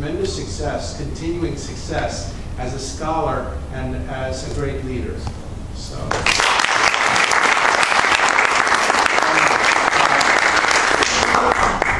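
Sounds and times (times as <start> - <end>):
audience applauding: 6.1 - 11.9.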